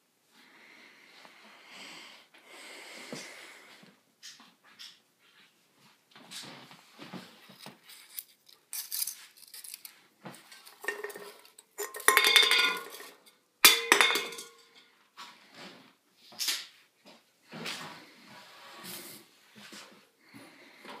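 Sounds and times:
kitchenware clattering and clinking: 0:08.8 - 0:14.9
ringing metallic clatters: 0:10.8 - 0:14.8.

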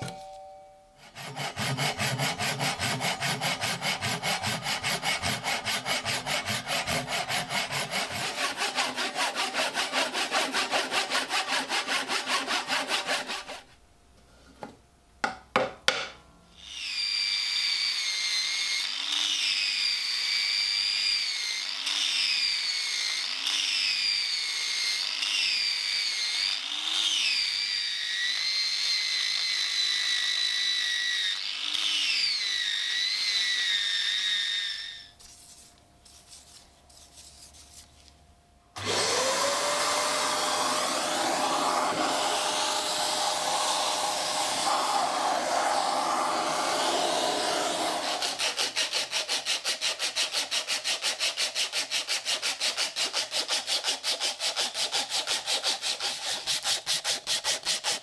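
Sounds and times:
angle grinder sanding wood: 0:01.0 - 0:13.7, 0:38.8 - 0:58.0
hand saw cutting wood: 0:01.0 - 0:13.7, 0:38.8 - 0:58.0
knocks: 0:15.2 - 0:16.2.

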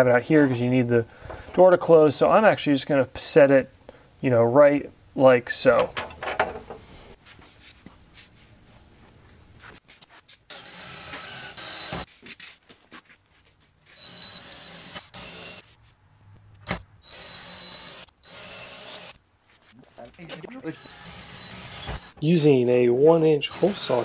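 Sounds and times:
power drill whining: 0:10.5 - 0:12.1, 0:14.0 - 0:15.6, 0:17.0 - 0:19.2, 0:20.8 - 0:22.2, 0:23.5 - 0:24.0.

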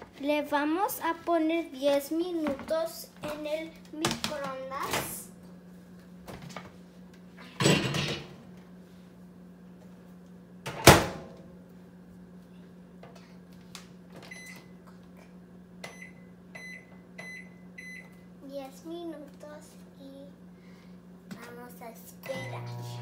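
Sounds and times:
steady low hum: 0:00.0 - 0:23.0
microwave keypad beeps: 0:14.3 - 0:14.7, 0:15.8 - 0:18.1.

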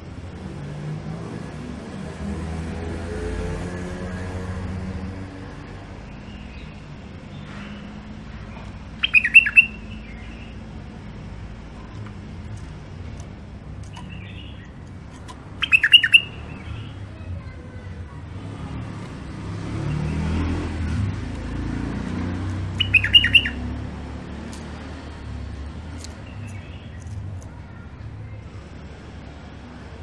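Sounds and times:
bird chirping calls: 0:06.1 - 0:10.7, 0:13.8 - 0:17.8, 0:22.4 - 0:24.7, 0:26.0 - 0:27.8.

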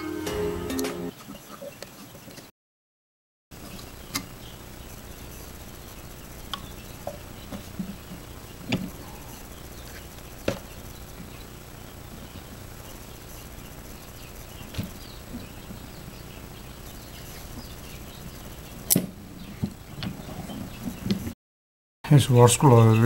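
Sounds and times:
crickets chirping: 0:03.6 - 0:21.1.

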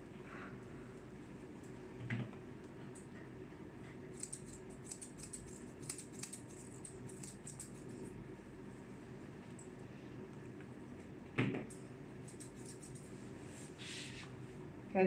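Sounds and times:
shears snipping fur: 0:04.1 - 0:08.0, 0:12.2 - 0:13.1.

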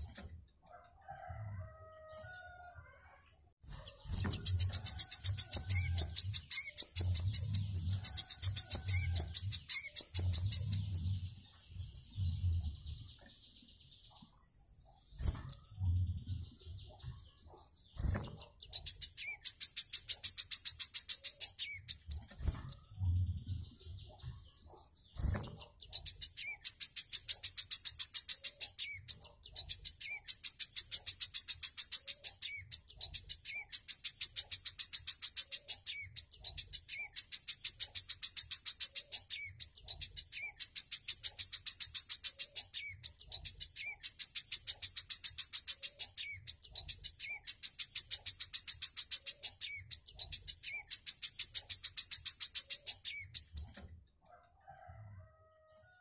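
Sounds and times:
songbird chattering trills: 0:03.8 - 0:11.1.

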